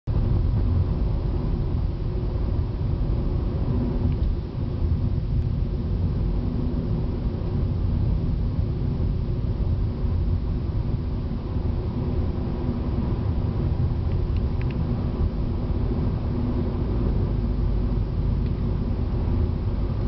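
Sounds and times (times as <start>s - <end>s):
car engine and tyre noise: 0.1s - 20.0s.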